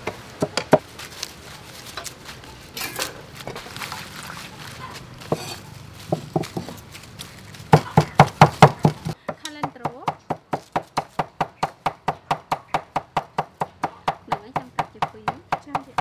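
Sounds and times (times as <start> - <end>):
lettuce rustling in steel bowl: 0.8 - 8.2
knife chopping on cutting board: 5.3 - 6.8.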